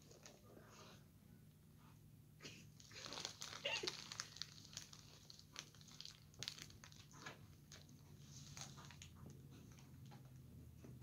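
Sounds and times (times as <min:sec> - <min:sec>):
plastic bag crinkling: 0:02.7 - 0:09.1.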